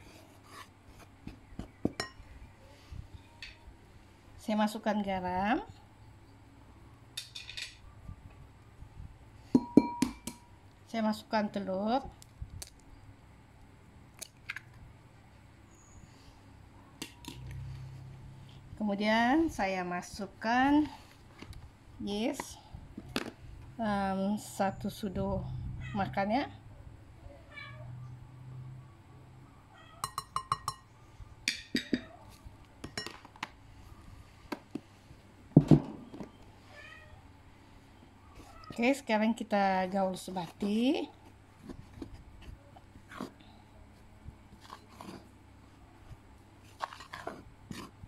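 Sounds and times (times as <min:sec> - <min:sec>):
metal spoon clinking on glass bowl: 0:30.0 - 0:30.9.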